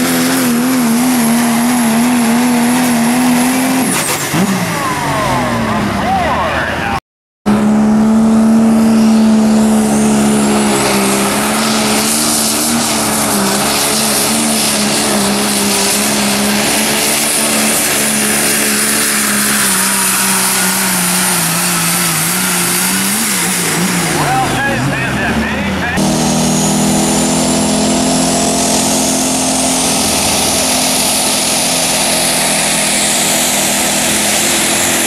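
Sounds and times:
diesel truck engine under load: 0:00.0 - 0:35.0
turbo whine: 0:07.5 - 0:35.0.

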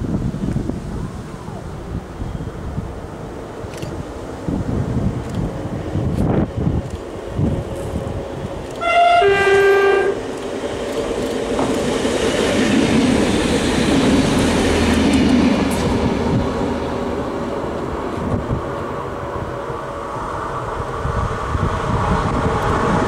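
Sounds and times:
train rumbling past: 0:00.0 - 0:23.0
two-tone train horn: 0:08.8 - 0:10.2.

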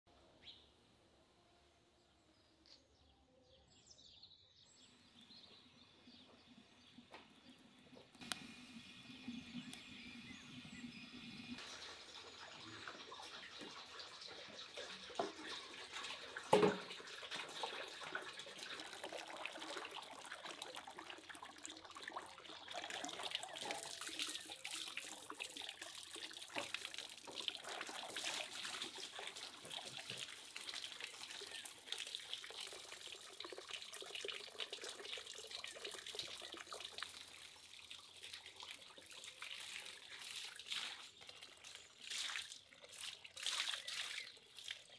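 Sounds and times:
tap water splashing into basin: 0:11.6 - 0:37.6.

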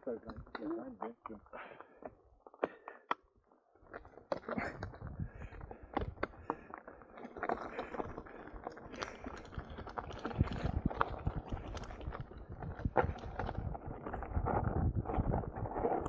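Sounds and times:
tyres crunching over gravel: 0:03.8 - 0:16.0.

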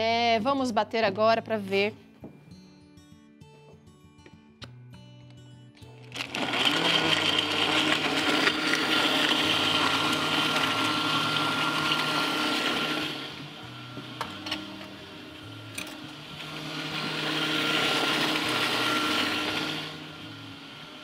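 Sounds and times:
blender crushing ice: 0:06.0 - 0:21.0
blender motor whining: 0:06.0 - 0:21.0.

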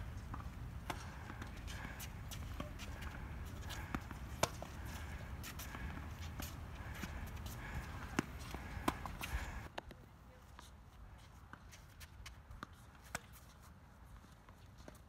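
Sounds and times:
tennis racket hitting ball: 0:00.0 - 0:09.7.

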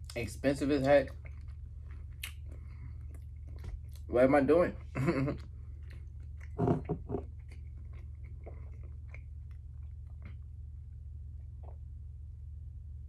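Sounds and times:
chewing: 0:00.0 - 0:04.1, 0:04.8 - 0:10.6.

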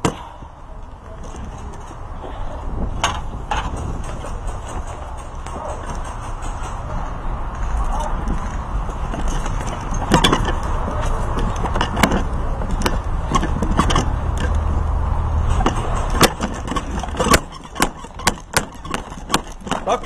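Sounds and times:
sharp clicks and knocks: 0:02.9 - 0:20.0.

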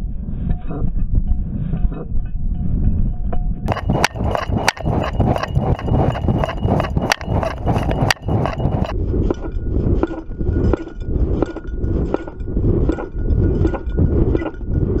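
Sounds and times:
low rumble of mount shaking: 0:03.7 - 0:15.0.

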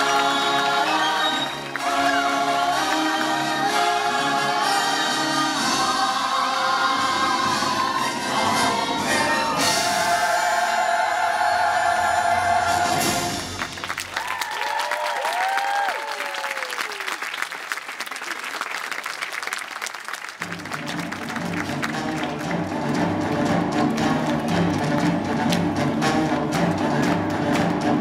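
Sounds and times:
audience applause and cheers: 0:00.0 - 0:03.8, 0:10.4 - 0:28.0
orchestral music with choir: 0:00.0 - 0:14.0, 0:20.5 - 0:28.0.

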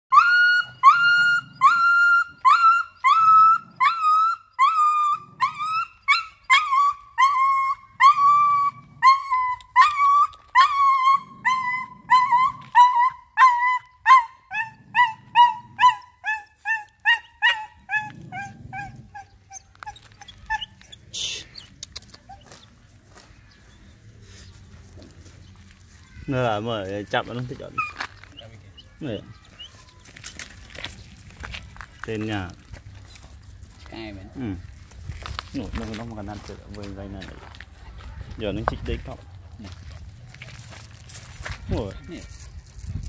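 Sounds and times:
dog yelping and crying: 0:00.1 - 0:22.5, 0:27.3 - 0:29.8.

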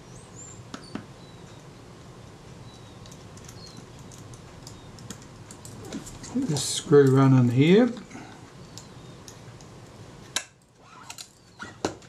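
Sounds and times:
low room hum: 0:00.0 - 0:12.0
faint bird chirps: 0:02.6 - 0:05.0.

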